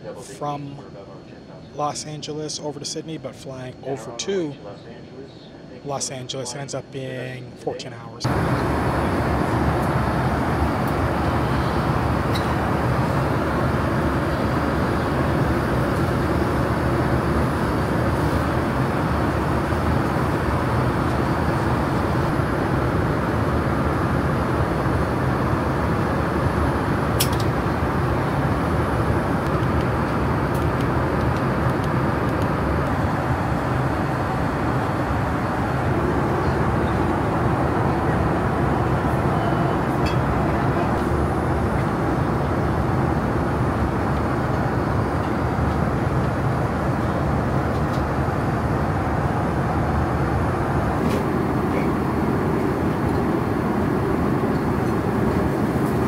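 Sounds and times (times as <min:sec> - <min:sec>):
airliner cabin noise: 0:05.0 - 0:56.0.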